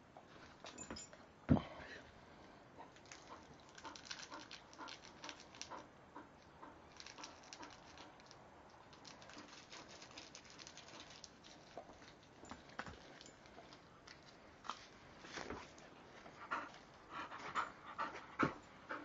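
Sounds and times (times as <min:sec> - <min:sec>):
dog panting: 0:02.8 - 0:08.1, 0:16.2 - 0:19.0.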